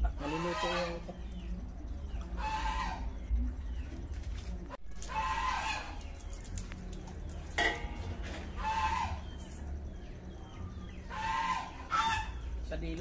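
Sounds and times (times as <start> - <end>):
chickens calling: 0.0 - 13.0.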